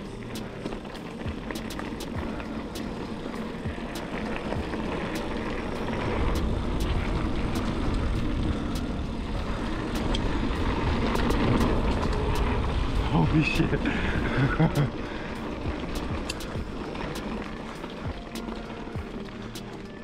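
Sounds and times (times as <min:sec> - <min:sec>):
bike clicks and rattles: 0:00.0 - 0:20.0
tyre and wind rumble: 0:00.0 - 0:20.0.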